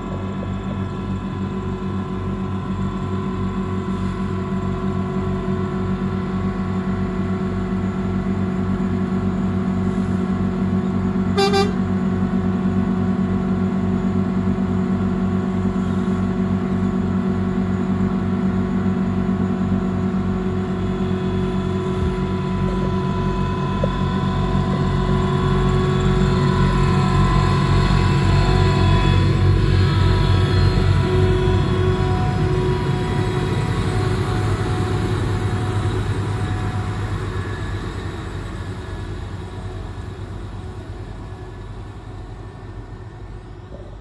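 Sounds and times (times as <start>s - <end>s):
diesel locomotive engines running: 0.0s - 44.0s
short horn toot: 11.4s - 11.8s.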